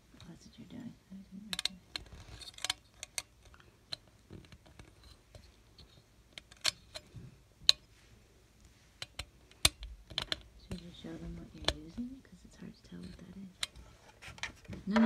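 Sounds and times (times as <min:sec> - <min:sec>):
small tool clicking and scratching: 0:01.5 - 0:07.1, 0:09.0 - 0:12.1.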